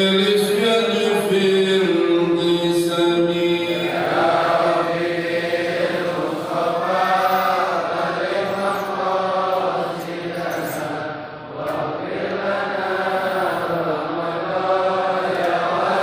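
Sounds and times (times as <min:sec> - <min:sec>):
men chanting devotional praises: 0:00.0 - 0:16.0.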